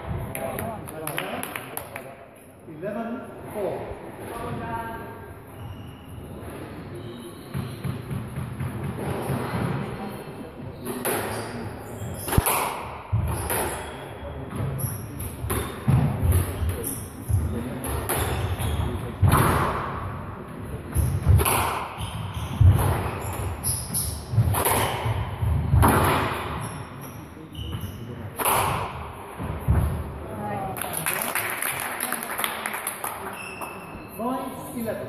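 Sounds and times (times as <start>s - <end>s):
squash ball hit by rackets: 12.2s - 13.9s, 19.2s - 20.0s, 20.9s - 26.6s, 28.4s - 30.0s
shoes squeaking on wooden floor: 21.0s - 25.8s, 26.4s - 28.4s.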